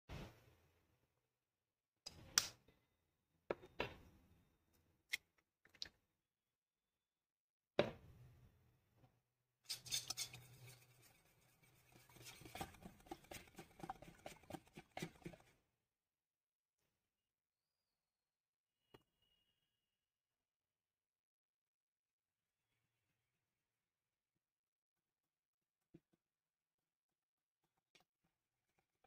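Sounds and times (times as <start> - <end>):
whisk beating in steel bowl: 9.7 - 15.5.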